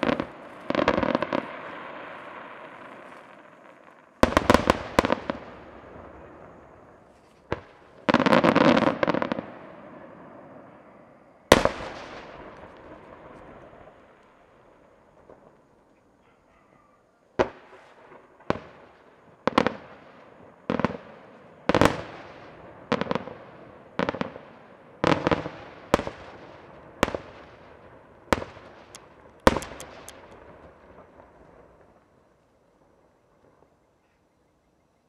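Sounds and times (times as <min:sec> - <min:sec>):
cluster of firework cracks: 0:00.0 - 0:10.8, 0:11.5 - 0:15.9, 0:17.4 - 0:32.0
firework shells bursting: 0:28.4 - 0:30.8.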